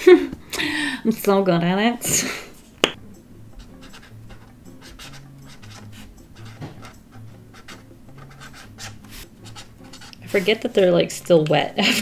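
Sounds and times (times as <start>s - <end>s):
marker scratching on paper: 3.6s - 10.7s.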